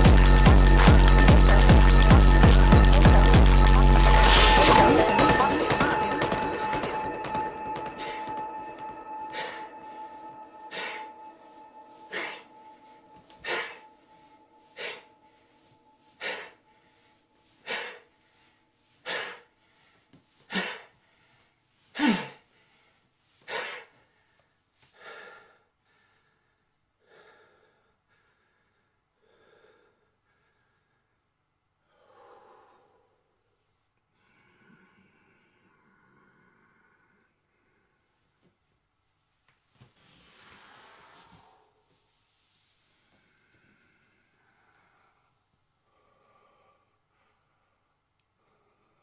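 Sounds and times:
man gasping for breath: 0:19.0 - 0:31.1.

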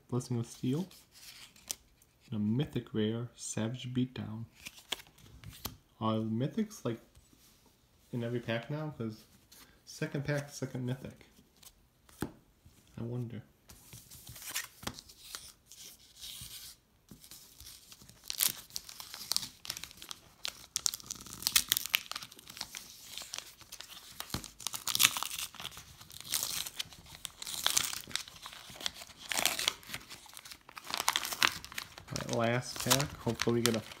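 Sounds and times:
foil wrapper ripping and crinkling: 0:17.9 - 0:34.0.

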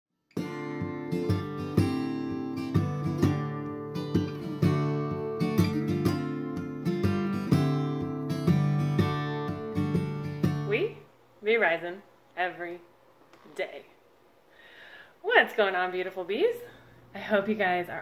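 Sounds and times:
acoustic guitar strumming: 0:00.3 - 0:11.0.

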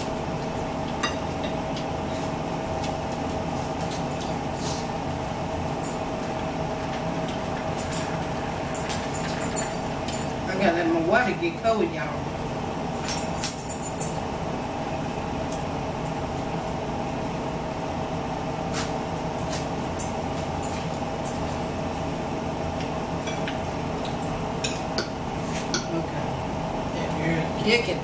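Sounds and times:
steady droning hum: 0:00.0 - 0:28.0
forks clinking on plates: 0:07.8 - 0:10.4.

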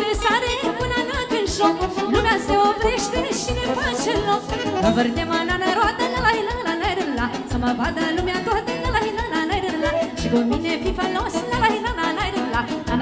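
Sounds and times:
band playing steady beat: 0:00.0 - 0:13.0
saxophone fast ornamented melody: 0:01.6 - 0:06.4.

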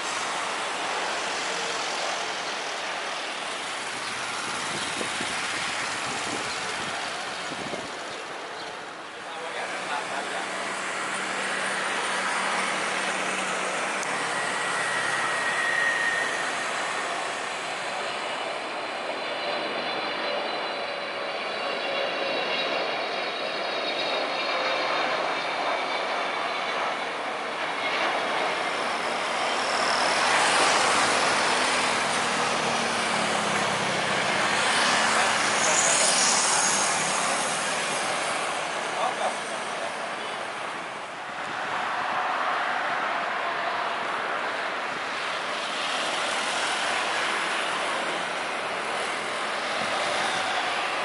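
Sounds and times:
high fan whine: 0:00.0 - 0:19.8, 0:43.0 - 0:51.0
jet engine turbofan noise: 0:00.0 - 0:51.0.

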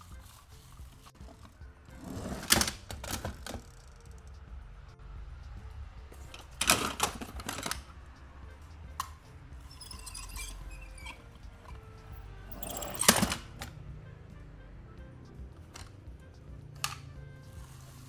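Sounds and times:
toy cars rattling on plastic board: 0:02.2 - 0:03.9, 0:06.4 - 0:07.9.

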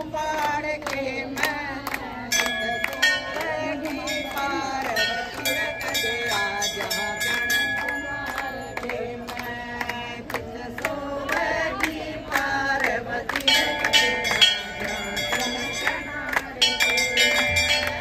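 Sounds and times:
group singing devotional song: 0:00.0 - 0:18.0
hand-clapping: 0:00.0 - 0:18.0.

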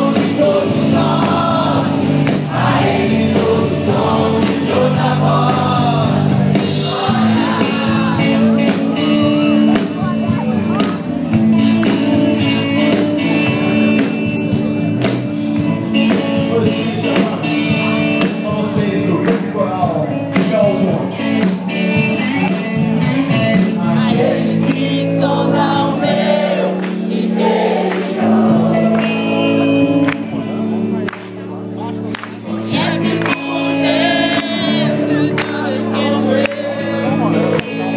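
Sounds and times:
person singing: 0:00.0 - 0:10.9, 0:32.5 - 0:37.9
drum beat: 0:00.0 - 0:24.6
electric guitars: 0:00.0 - 0:37.9.

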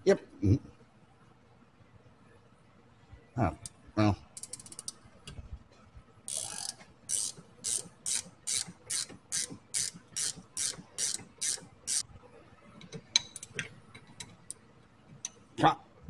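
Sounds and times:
ratchet pawl clicks: 0:04.4 - 0:05.0, 0:06.3 - 0:12.0.

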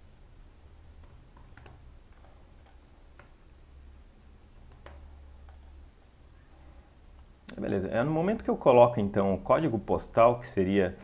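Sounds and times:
low steady hum: 0:00.0 - 0:11.0
keyboard typing: 0:00.9 - 0:03.4, 0:04.4 - 0:05.9.

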